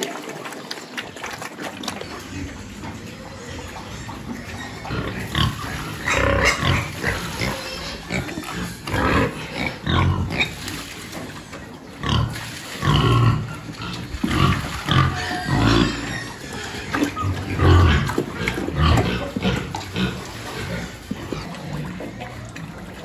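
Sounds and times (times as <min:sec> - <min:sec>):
pigs grunting: 0:01.2 - 0:23.0.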